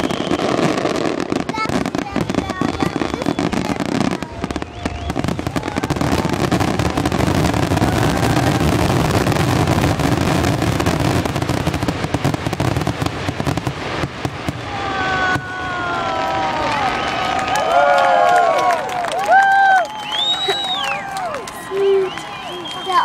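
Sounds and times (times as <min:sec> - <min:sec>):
fireworks bursting in rapid bangs: 0:00.0 - 0:17.6.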